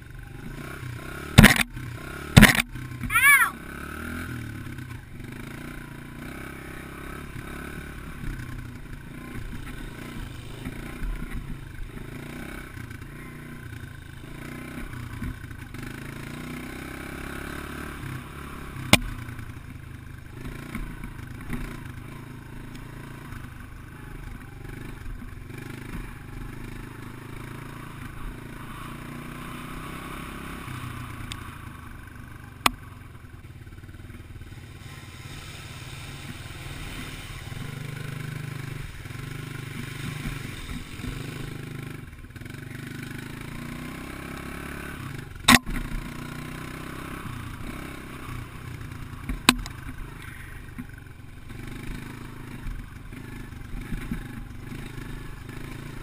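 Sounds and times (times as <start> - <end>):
dirt bike engine: 0.0 - 56.0
sharp knocks: 2.4 - 2.7.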